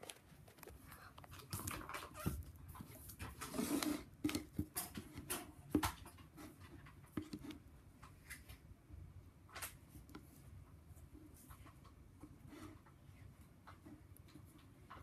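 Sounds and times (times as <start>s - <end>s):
spatula stirring sticky slime: 0.6s - 8.7s.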